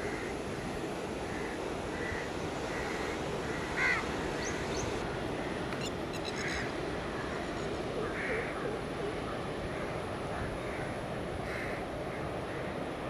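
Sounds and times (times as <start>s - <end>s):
crows cawing: 0.0s - 0.5s, 1.2s - 4.6s, 6.3s - 8.6s, 9.7s - 12.7s
sea surf: 0.0s - 13.0s
wind: 0.0s - 13.0s.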